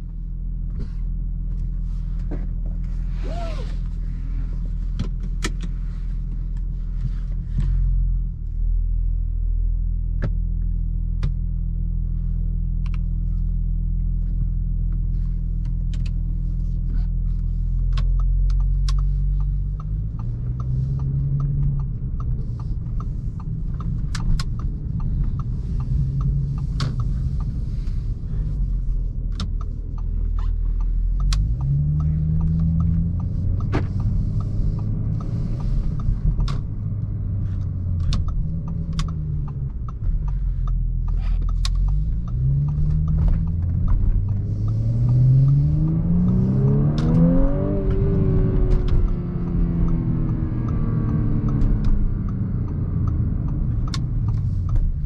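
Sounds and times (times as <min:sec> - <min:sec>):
car engine idling and accelerating: 0:00.0 - 0:55.0.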